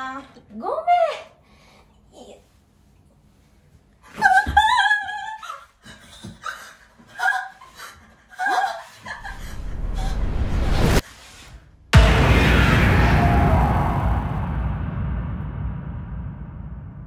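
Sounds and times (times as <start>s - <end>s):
rising noise swell: 9.2s - 11.0s, 12.0s - 17.0s.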